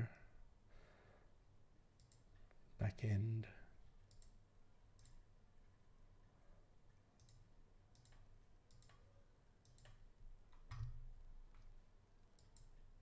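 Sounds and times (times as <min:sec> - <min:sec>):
computer mouse clicks: 0:02.0 - 0:02.6, 0:04.0 - 0:05.2, 0:07.2 - 0:11.7, 0:12.3 - 0:12.8.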